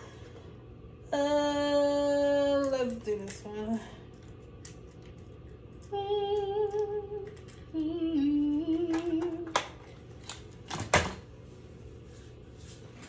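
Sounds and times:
woman humming: 1.1 - 2.7, 5.8 - 9.6.

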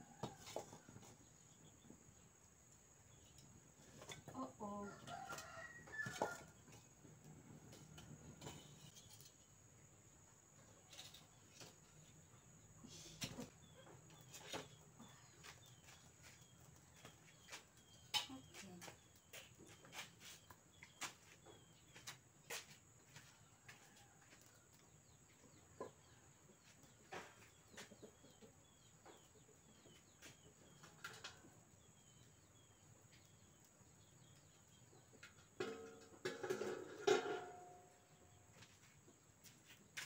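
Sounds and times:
small birds chirping: 8.2 - 35.6.

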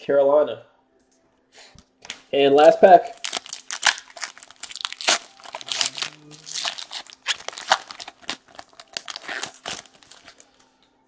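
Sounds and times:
wrapper being torn and crinkled: 2.6 - 10.7.

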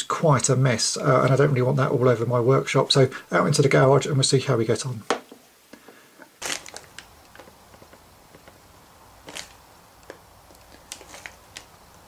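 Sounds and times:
faint low hum: 5.7 - 12.0
paper crinkling: 6.4 - 8.6, 9.2 - 12.0.

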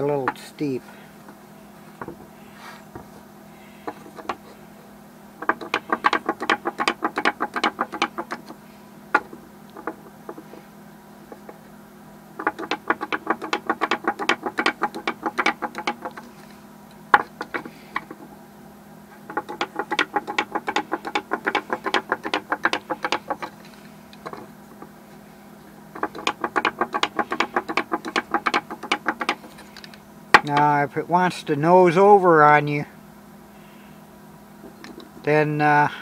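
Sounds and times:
wooden toy legs tapping board: 3.9 - 4.5, 5.4 - 10.5, 12.4 - 16.3, 17.1 - 18.3, 19.2 - 23.6, 24.2 - 24.9, 25.9 - 30.7.

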